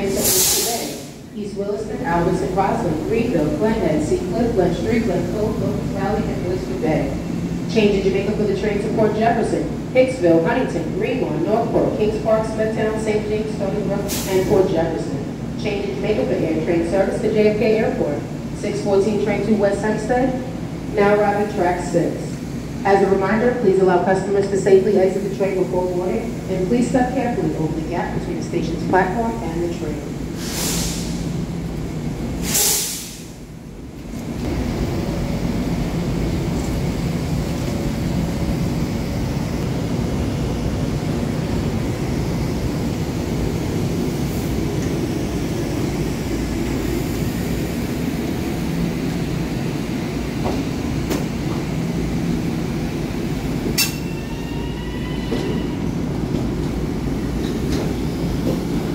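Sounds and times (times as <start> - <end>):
train wheels rumbling on rail: 0.0 - 58.9
high squeal from wheels or brakes: 53.8 - 55.8.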